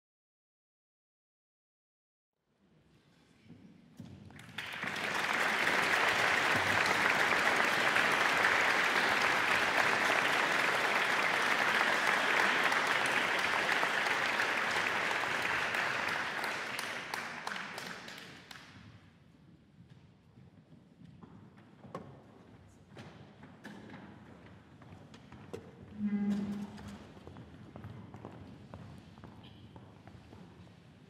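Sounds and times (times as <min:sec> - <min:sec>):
audience applauding: 0:04.4 - 0:18.7.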